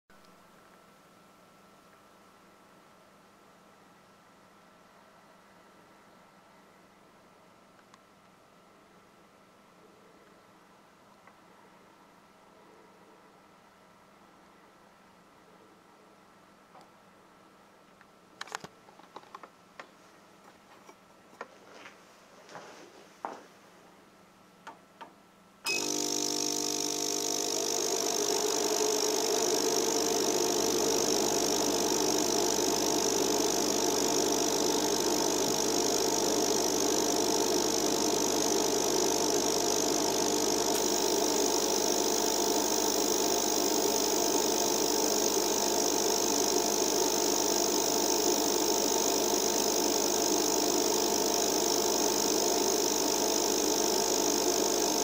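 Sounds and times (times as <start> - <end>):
machine whirring and humming: 25.7 - 55.0.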